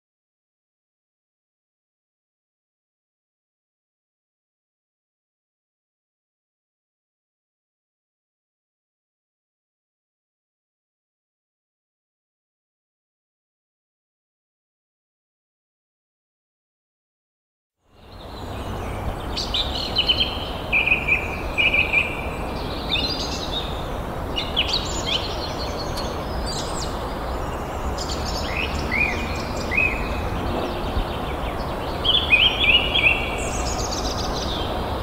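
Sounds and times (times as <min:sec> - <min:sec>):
birds chirping and twittering: 0:17.9 - 0:35.0
steady rushing background noise: 0:18.1 - 0:35.0.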